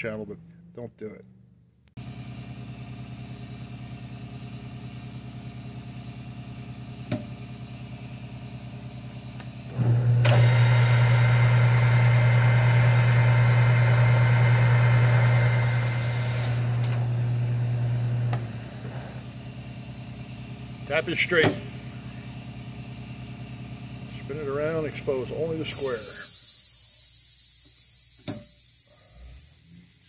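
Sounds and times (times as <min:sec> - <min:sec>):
lathe motor hum: 0:09.7 - 0:19.6.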